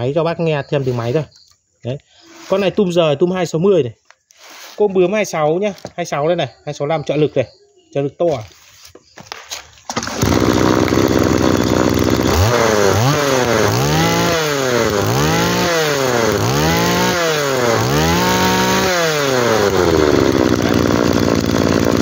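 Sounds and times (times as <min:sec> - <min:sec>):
brush-cutter engine revving: 0:00.8 - 0:01.3, 0:02.3 - 0:02.8, 0:09.9 - 0:22.0.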